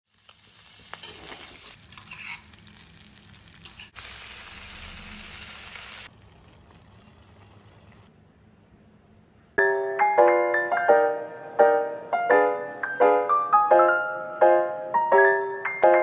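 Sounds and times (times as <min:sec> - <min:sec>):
meat sizzling in a pan: 0:00.0 - 0:06.1.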